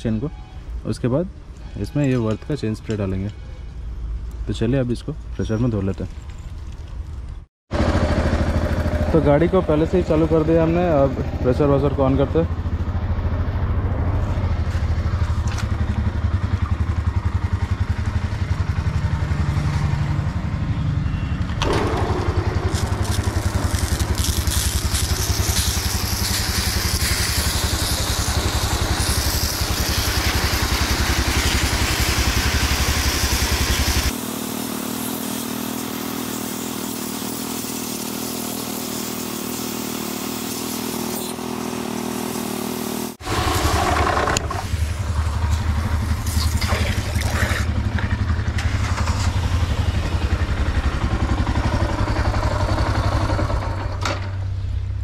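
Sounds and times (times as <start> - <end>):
motorcycle engine idling: 7.7 - 38.0, 41.4 - 55.0
pressure washer jet hissing: 21.6 - 47.8.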